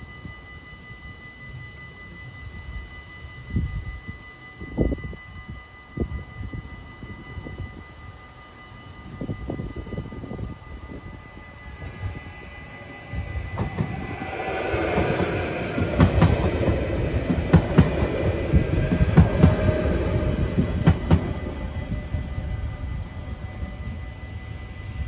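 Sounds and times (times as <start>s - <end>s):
train rumble: 0.0s - 25.0s.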